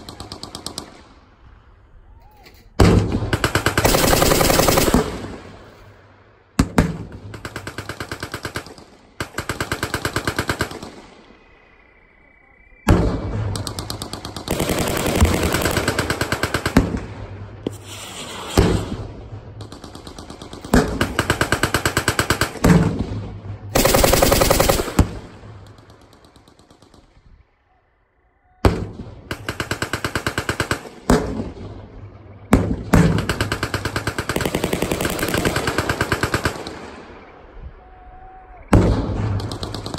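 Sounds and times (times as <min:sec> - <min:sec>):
machine-gun fire: 0:02.8 - 0:05.7, 0:12.9 - 0:27.1, 0:32.5 - 0:36.9, 0:38.7 - 0:39.9.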